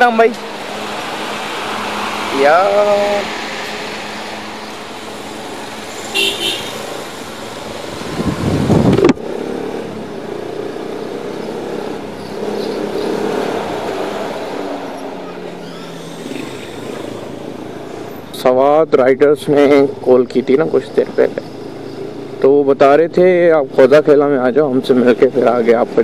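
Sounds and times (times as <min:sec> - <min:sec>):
motorcycle running: 0:00.0 - 0:26.0
street traffic: 0:00.0 - 0:26.0
horn toot: 0:06.1 - 0:06.9.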